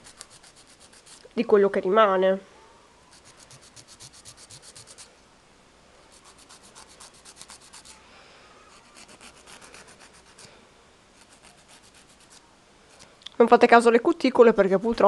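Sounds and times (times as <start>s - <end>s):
nail file scraping: 0.0s - 1.3s, 3.1s - 5.1s, 6.1s - 8.0s, 8.7s - 10.5s, 11.2s - 13.1s.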